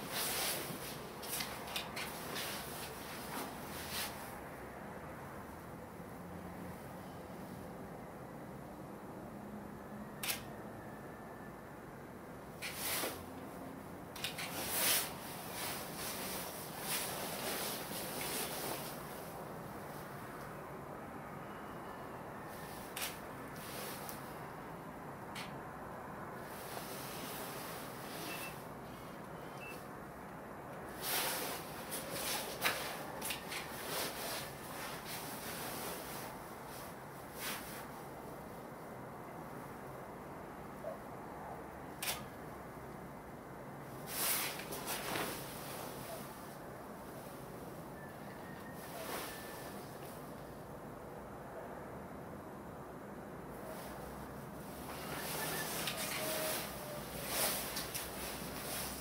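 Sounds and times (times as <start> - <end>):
handling rustles and scrapes: 0.0 - 4.4, 14.3 - 20.2, 30.9 - 38.0, 44.1 - 47.4, 48.3 - 50.4, 53.6 - 59.0
low steady hiss: 0.0 - 59.0
camera click: 10.2 - 10.5
steady hiss: 12.6 - 13.4, 30.9 - 38.0, 44.0 - 47.4.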